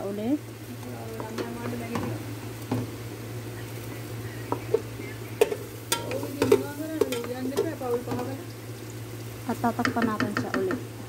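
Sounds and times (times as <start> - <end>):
spoon knocking against pot: 5.4 - 8.3, 9.8 - 10.9.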